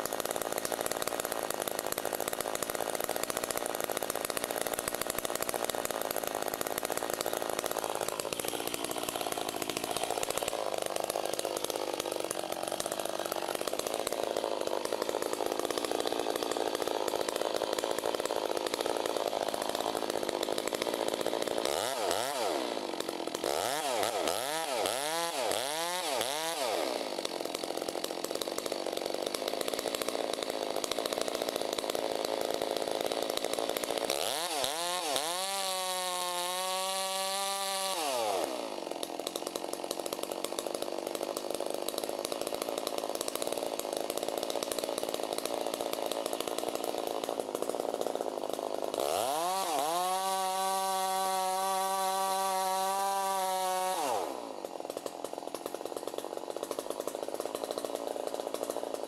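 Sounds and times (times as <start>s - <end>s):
chainsaw cutting tree trunk: 0.0s - 59.0s.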